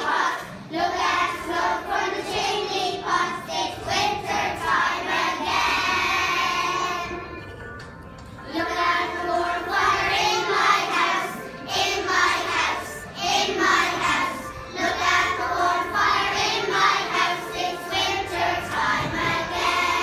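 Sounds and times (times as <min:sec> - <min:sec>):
children singing: 0:00.0 - 0:07.4, 0:08.5 - 0:20.0.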